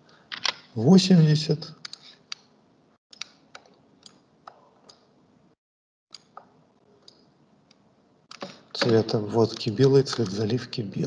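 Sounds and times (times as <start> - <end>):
computer mouse and keyboard clicks: 3.1 - 5.1, 6.1 - 10.5
faint room noise: 6.2 - 11.0.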